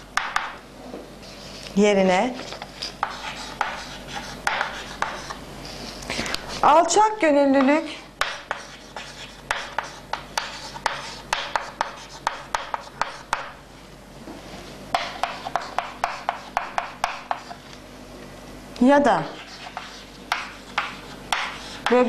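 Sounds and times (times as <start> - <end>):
chalk writing on chalkboard: 2.4 - 6.8, 8.2 - 13.5, 14.9 - 17.7, 19.2 - 22.0.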